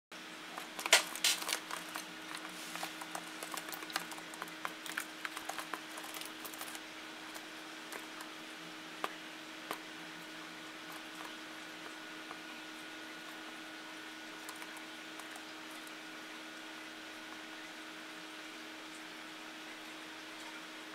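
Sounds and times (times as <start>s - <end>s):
steady low hum: 0.2s - 20.9s.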